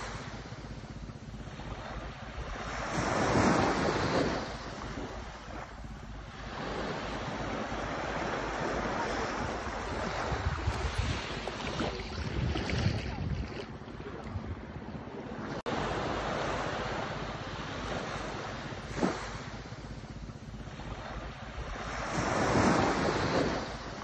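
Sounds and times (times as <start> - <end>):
wind buffeting microphone: 0.0 - 17.0
small waves washing onto sand: 0.0 - 24.0.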